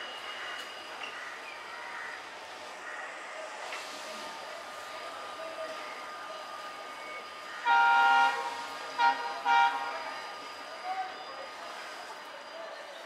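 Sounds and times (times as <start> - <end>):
station background noise: 0.0 - 13.0
train horn: 7.5 - 10.3.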